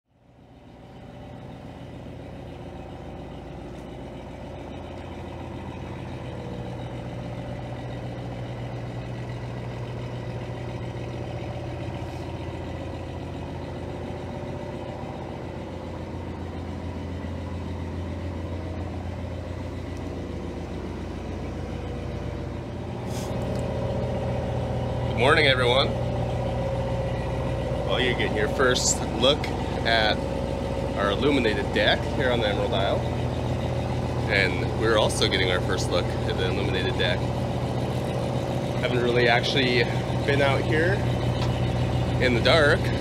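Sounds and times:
boat engine idling: 0:00.1 - 0:43.0.

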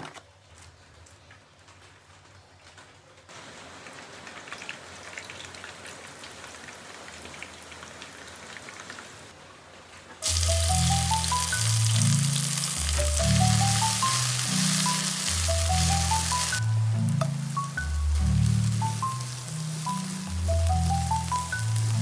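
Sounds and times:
hot oil crackling in a wok: 0:00.5 - 0:22.0
background music with mallet notes: 0:10.2 - 0:22.0.

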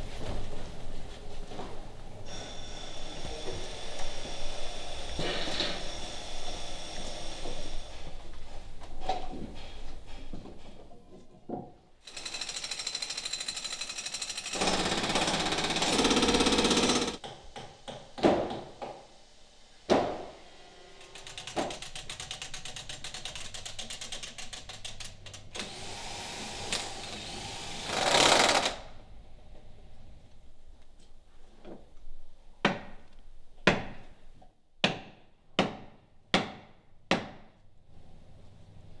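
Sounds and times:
rattling hammer tool: 0:12.0 - 0:17.2, 0:21.0 - 0:25.7
corded drill boring into timber: 0:12.1 - 0:17.2, 0:25.6 - 0:28.8.

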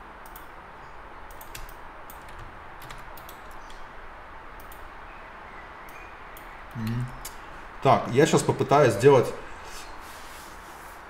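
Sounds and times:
low background hum: 0:00.0 - 0:11.0
keyboard and mouse clicks: 0:00.2 - 0:00.5, 0:01.3 - 0:03.8, 0:04.6 - 0:04.9.

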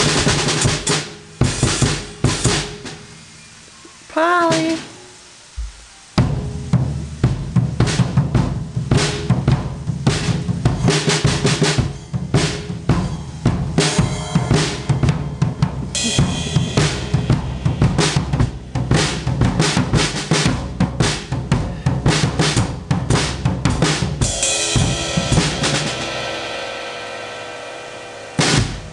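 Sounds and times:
cymbal crash: 0:00.0 - 0:28.9
drum solo: 0:00.0 - 0:28.9
cymbal ringing: 0:10.6 - 0:19.4, 0:24.2 - 0:28.9.

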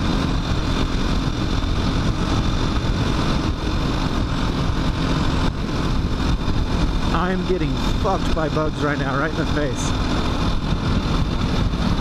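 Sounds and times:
motorcycle engine running: 0:00.0 - 0:12.0
wind buffeting microphone: 0:00.0 - 0:12.0.

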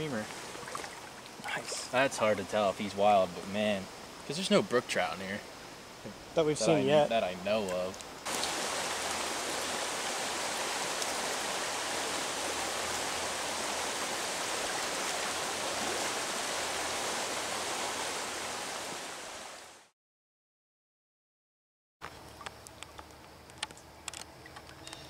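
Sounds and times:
creek water running over rocks: 0:00.0 - 0:05.4, 0:06.4 - 0:19.9.

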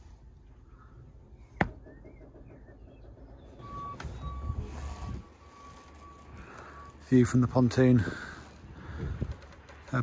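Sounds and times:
reversing alarm beeping: 0:02.6 - 0:08.5.

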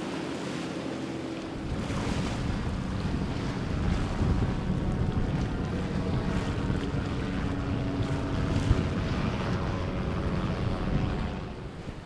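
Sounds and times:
choppy sea water: 0:00.0 - 0:12.0
faint boat engines droning: 0:00.0 - 0:12.0
wind rumbling on microphone: 0:01.2 - 0:12.0.

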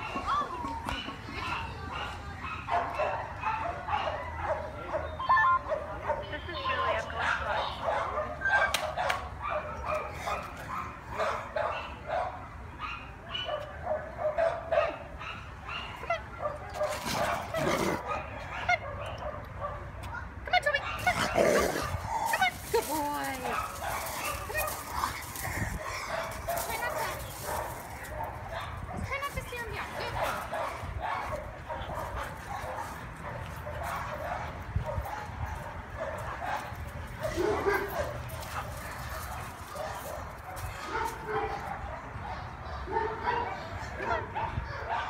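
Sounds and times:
dog yipping barks: 0:00.0 - 0:19.8, 0:29.8 - 0:38.2.

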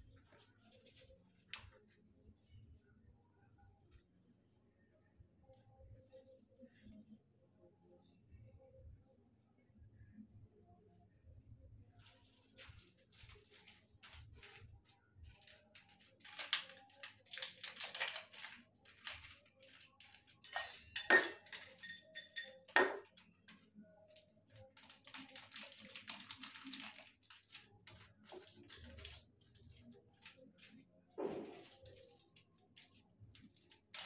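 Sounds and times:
metal utensils clinking: 0:20.4 - 0:23.1.

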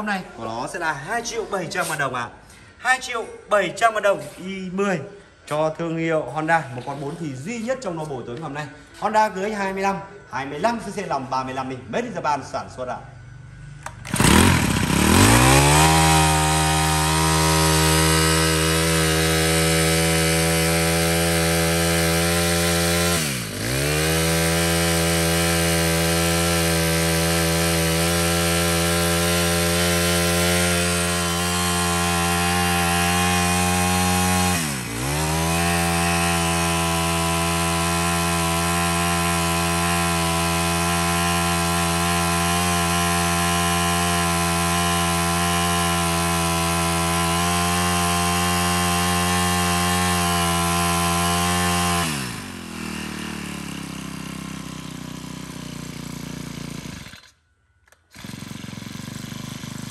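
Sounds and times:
brush cutter engine revving: 0:12.9 - 0:59.9.

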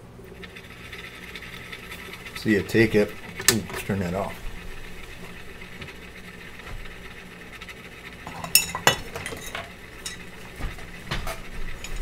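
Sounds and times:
stirrer faint hum: 0:00.0 - 0:12.0.

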